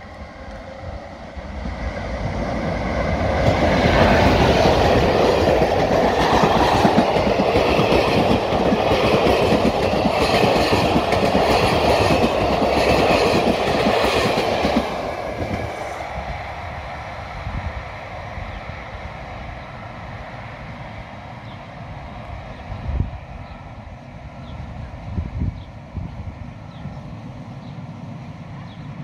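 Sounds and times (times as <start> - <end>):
passenger train wheels clacking: 0.0 - 17.1.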